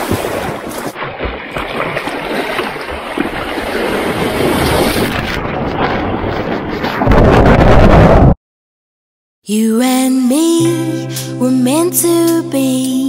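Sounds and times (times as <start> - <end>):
rushing water over surfboard: 0.0 - 8.1
wind buffeting microphone: 2.7 - 8.4.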